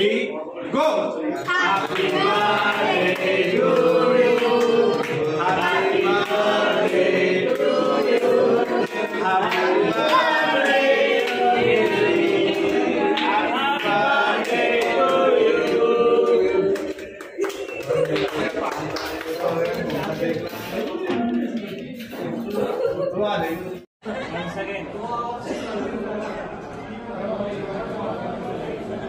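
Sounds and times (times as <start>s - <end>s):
group of voices singing: 1.4s - 18.7s.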